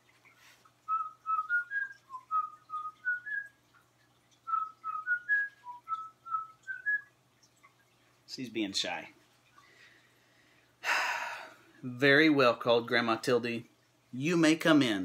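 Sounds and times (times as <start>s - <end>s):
man whistling a tune: 0.9s - 3.5s, 4.5s - 7.0s.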